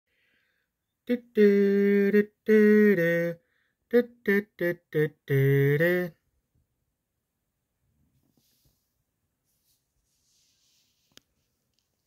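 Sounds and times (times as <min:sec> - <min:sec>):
person humming a wordless tune: 0:01.0 - 0:06.2.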